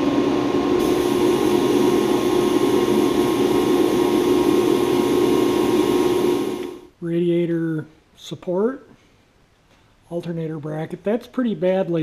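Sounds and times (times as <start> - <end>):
steady machine hum: 0.0 - 6.9
bead blasting hiss: 0.8 - 5.9.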